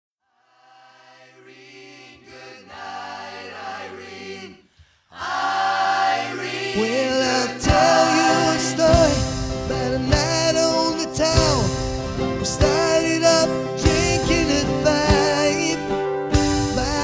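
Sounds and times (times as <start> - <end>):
choir-like sustained voices: 0.3 - 11.1
drum hits: 7.6 - 13.2, 13.8 - 15.4, 16.3 - 17.0
rock band playing: 7.6 - 17.0.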